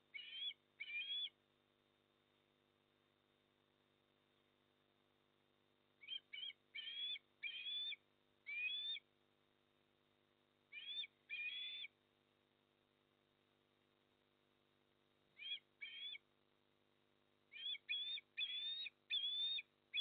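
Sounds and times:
osprey whistled chirps: 0.2s - 1.3s, 6.0s - 9.0s, 10.7s - 11.9s, 15.4s - 16.2s, 17.5s - 20.0s.

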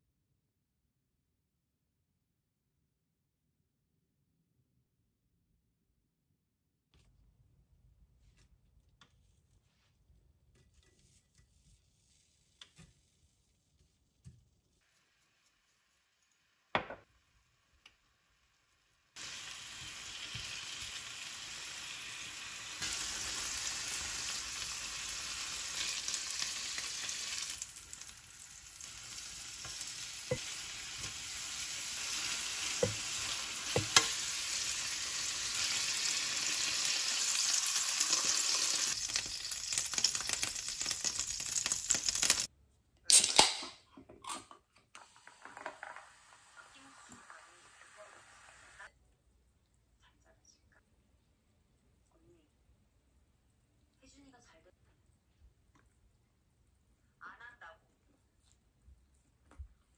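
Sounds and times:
meat sizzling on a grill pan: 18.8s - 42.5s.

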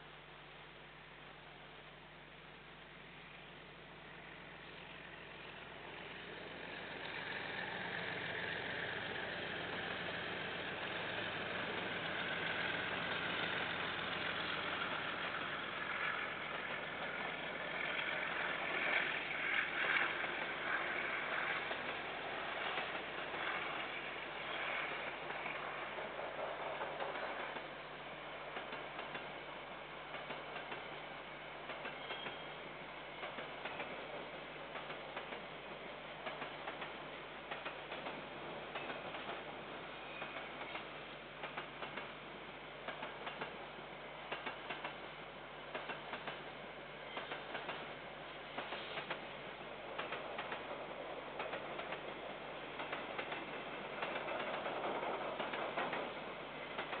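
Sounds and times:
train rumble and engine: 0.0s - 57.0s
wheel clicks over rails: 18.4s - 24.0s, 36.2s - 39.6s, 40.2s - 42.2s, 42.8s - 43.6s, 44.3s - 45.0s, 45.7s - 46.5s, 47.2s - 47.9s, 48.6s - 57.0s.

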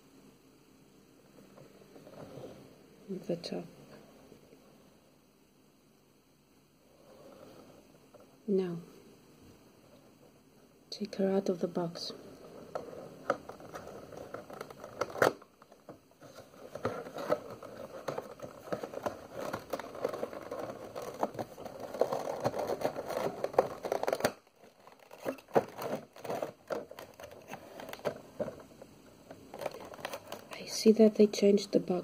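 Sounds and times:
plastic packaging crinkling: 12.4s - 28.7s, 29.3s - 30.7s.

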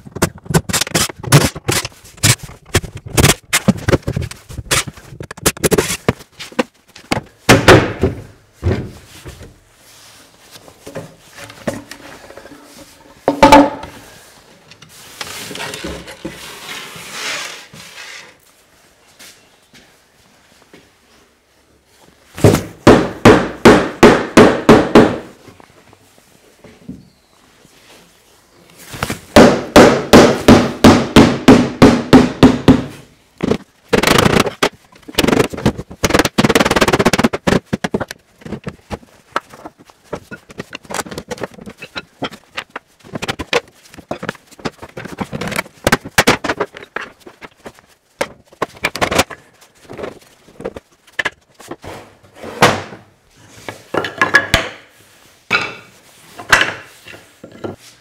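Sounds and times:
wooden panels clattering: 32.4s - 51.9s.

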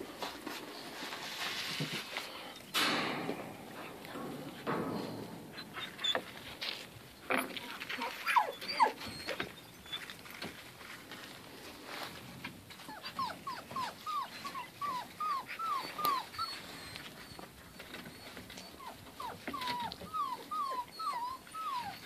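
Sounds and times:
puppies whining and yipping: 4.2s - 6.6s, 8.0s - 10.4s, 12.7s - 22.0s.

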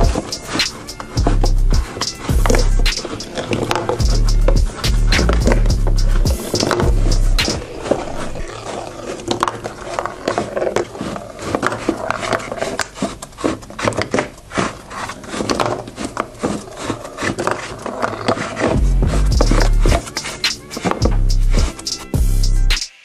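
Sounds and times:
loud low rumble: 4.0s - 7.4s.

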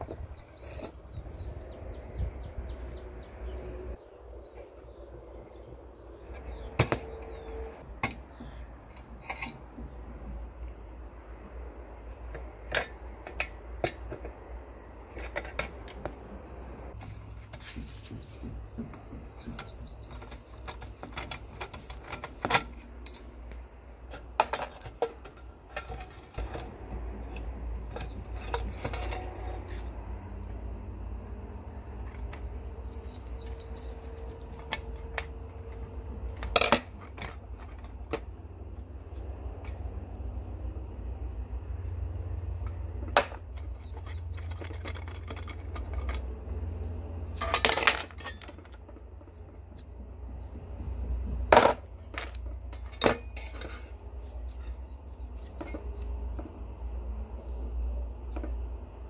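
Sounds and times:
small metal clicks and scrapes: 19.3s - 31.1s, 31.7s - 40.5s, 42.6s - 59.0s
low steady rumble: 21.4s - 59.0s.

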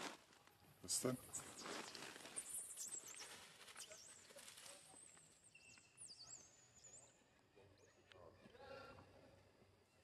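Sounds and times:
faint high chirping calls: 1.2s - 8.5s
footsteps through undergrowth: 1.3s - 5.3s.

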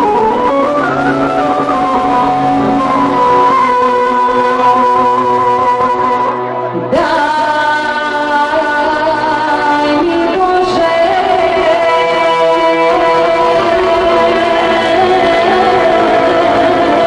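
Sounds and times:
clarinet: 0.0s - 6.6s
accordion: 0.0s - 7.1s
folk band music: 0.0s - 7.2s
saxophone: 0.0s - 7.2s
woman singing into a microphone: 0.0s - 17.0s.

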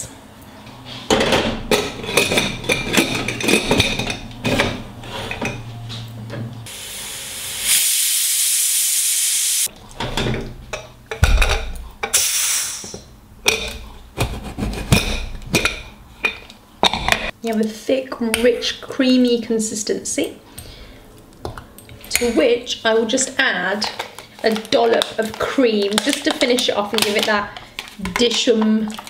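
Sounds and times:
pressure cooker venting steam: 6.7s - 9.7s, 12.1s - 12.9s.

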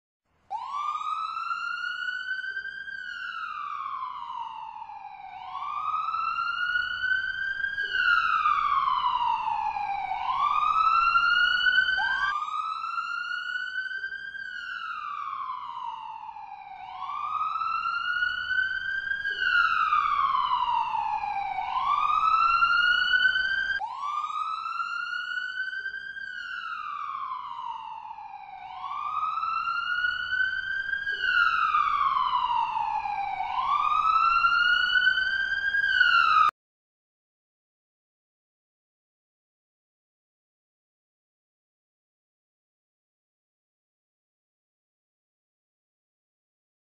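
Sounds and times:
ambulance siren wailing: 0.5s - 36.6s.

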